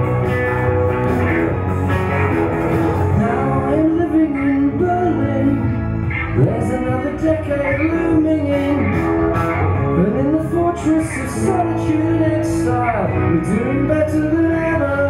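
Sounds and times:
strummed electric guitar: 0.0 - 15.0
man singing into microphone: 3.1 - 9.2, 9.8 - 15.0.

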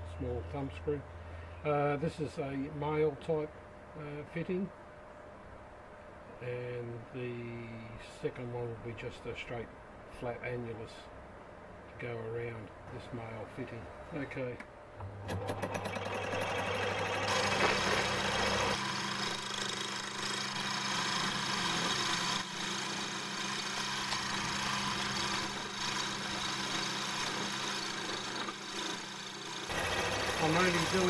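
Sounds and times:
lathe motor hum: 15.0 - 31.0.

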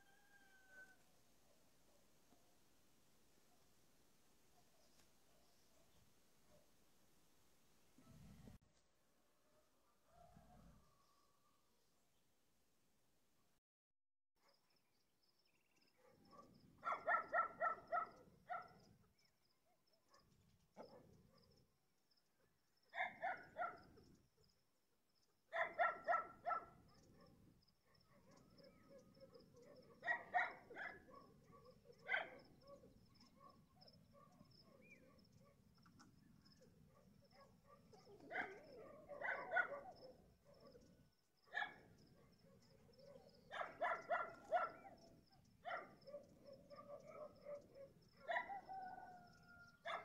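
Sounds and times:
dog barking: 15.9 - 18.9, 20.0 - 21.6, 22.9 - 24.1, 25.5 - 35.7, 36.5 - 50.0.

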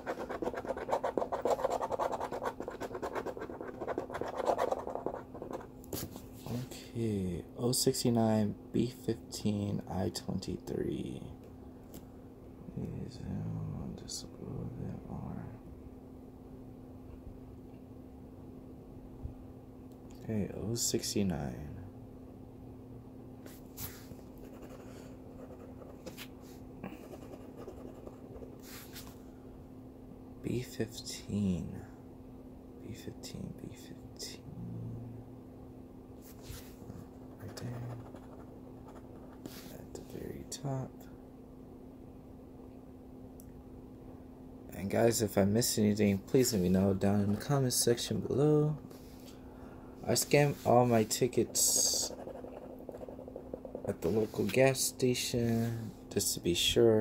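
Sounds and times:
scratching lottery ticket: 0.0 - 5.7, 23.9 - 26.2, 26.9 - 29.1, 36.3 - 39.8, 50.4 - 54.5.

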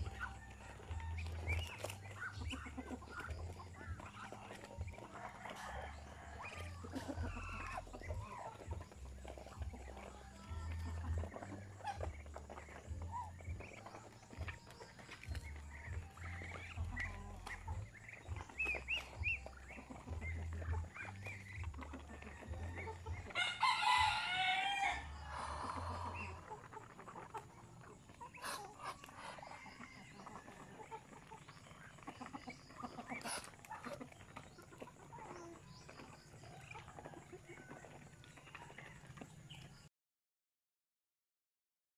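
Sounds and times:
rooster crowing: 0.0 - 1.6, 5.1 - 7.8, 22.2 - 26.4, 29.1 - 30.8
ducks pecking grain: 0.0 - 39.9.

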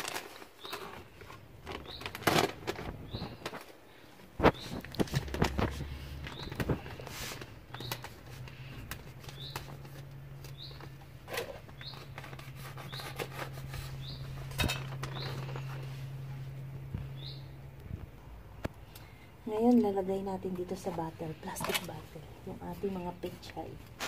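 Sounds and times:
scissors cutting plastic bag: 0.0 - 3.7, 4.5 - 15.7
thick plastic crinkling: 0.0 - 17.2
low steady hum: 0.0 - 24.0
bird chirping: 6.3 - 7.0, 7.7 - 9.8, 10.4 - 15.8, 17.0 - 17.6.

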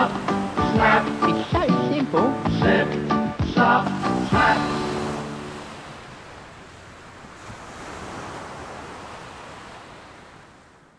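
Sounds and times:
ocean surf hiss: 0.0 - 10.6.

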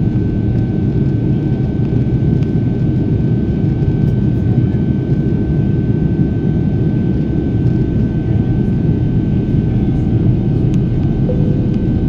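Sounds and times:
jet engine and airflow rush: 8.1 - 12.0
high-pitched whine: 11.0 - 12.0.

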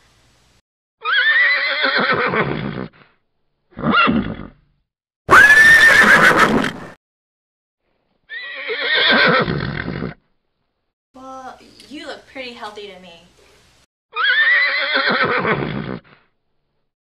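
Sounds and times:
horse whinnying: 1.0 - 3.1, 3.7 - 4.6, 5.3 - 7.0, 8.3 - 10.2, 14.1 - 16.2.

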